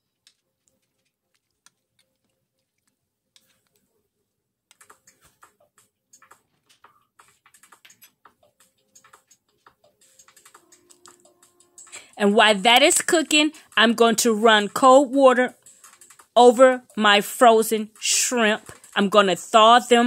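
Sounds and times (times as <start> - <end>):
faint clicking and ticking: 4.7 - 17.0.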